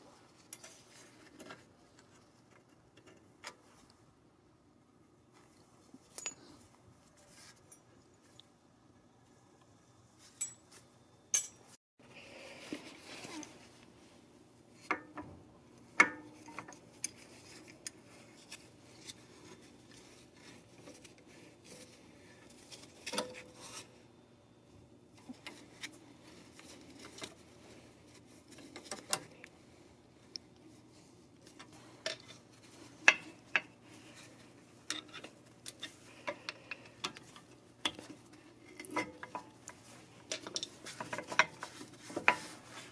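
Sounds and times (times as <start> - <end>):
metal tool clinks and scrapes: 6.1 - 6.6.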